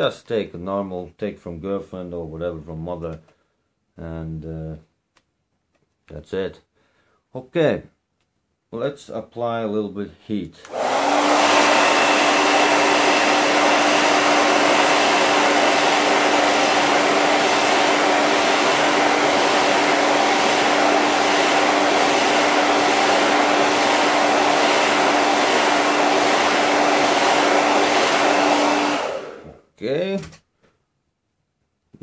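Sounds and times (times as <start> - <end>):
hair dryer blowing: 10.6 - 29.6.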